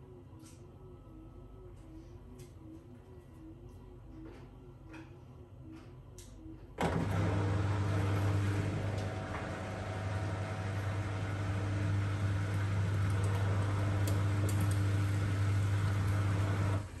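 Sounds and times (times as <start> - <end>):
drain pump humming: 6.8 - 17.0
washing machine motor whine: 6.8 - 17.0.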